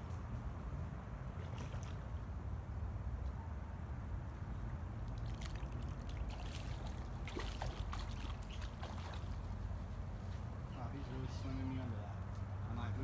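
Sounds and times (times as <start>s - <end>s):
fish splashing at water surface: 5.0s - 9.6s.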